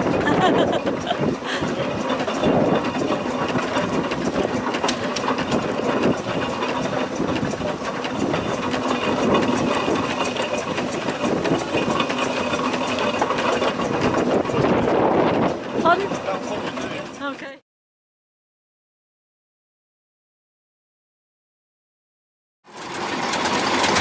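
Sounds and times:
steam engine beating: 0:00.0 - 0:17.6.

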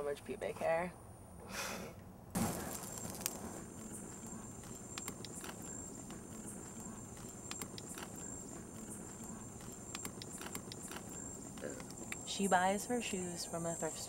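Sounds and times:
wood fire crackling: 0:02.4 - 0:12.3.

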